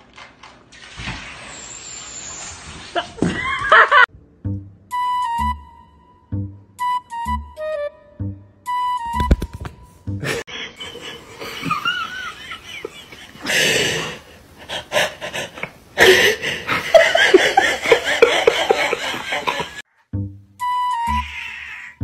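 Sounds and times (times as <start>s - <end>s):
laughter with wheezing breaths: 2.9s - 4.1s, 10.2s - 19.8s.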